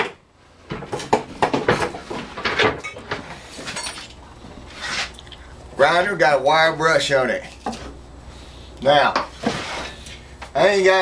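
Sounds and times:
faint metallic scrape: 0:04.7 - 0:05.2, 0:09.3 - 0:10.3.

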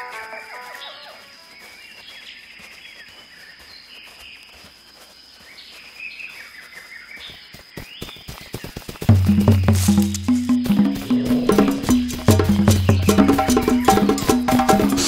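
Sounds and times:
bird chirps: 0:05.3 - 0:15.0
high insect drone: 0:09.2 - 0:15.0.

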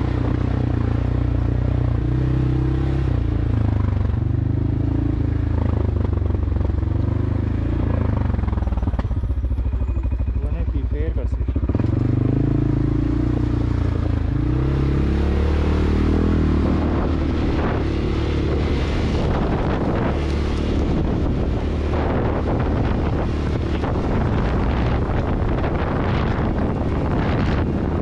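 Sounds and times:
atv engine running: 0:00.0 - 0:28.0
wind buffeting microphone: 0:11.1 - 0:28.0.

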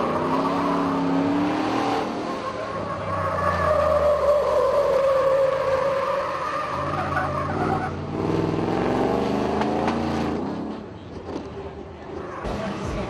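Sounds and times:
engine revving: 0:00.0 - 0:02.5, 0:07.8 - 0:10.8.

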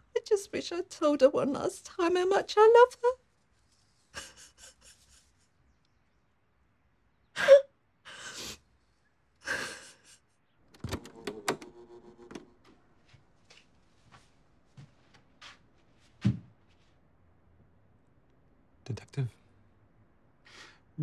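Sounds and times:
cassette mechanism hum: 0:10.7 - 0:12.8
person breathing sharply and sighing: 0:20.4 - 0:20.9.

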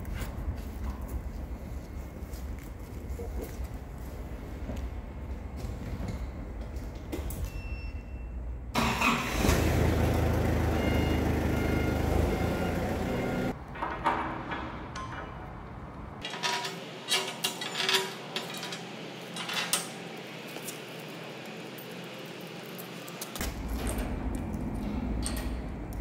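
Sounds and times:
machine rumbling: 0:21.0 - 0:26.0.

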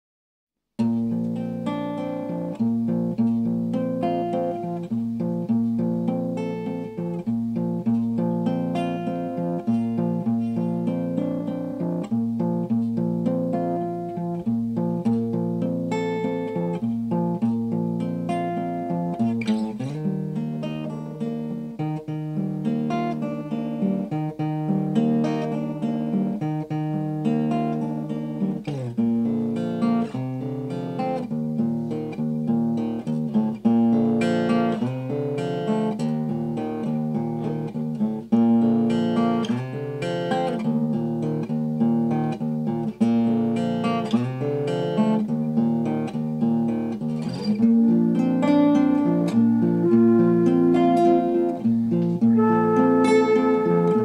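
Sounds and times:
acoustic guitar strumming and picking: 0:00.8 - 0:54.0.

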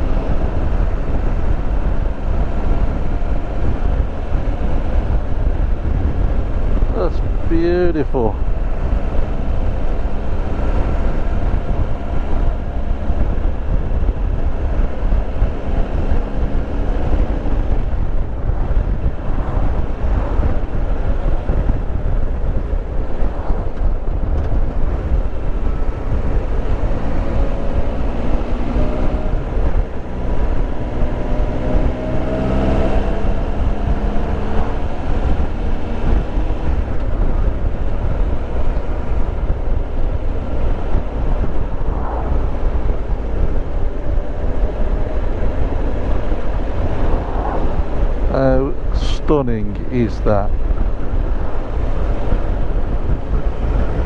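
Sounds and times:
wind noise on microphone: 0:00.0 - 0:54.0.

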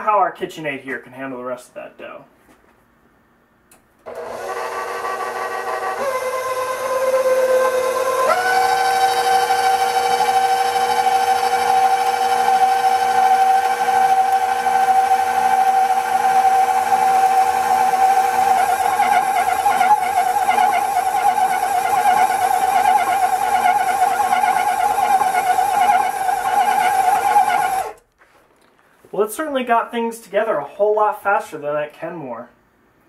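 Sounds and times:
stand mixer motor whine: 0:04.1 - 0:28.0.

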